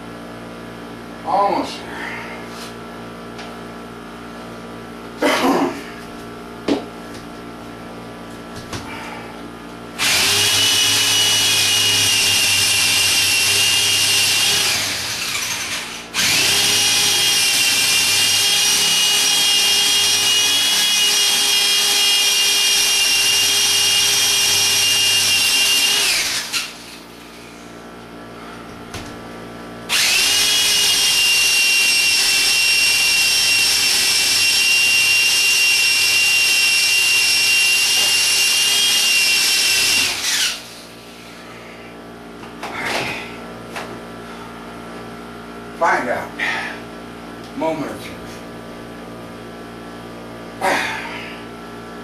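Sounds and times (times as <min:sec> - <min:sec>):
electric drill boring into concrete: 0:10.0 - 0:27.4, 0:29.9 - 0:41.3.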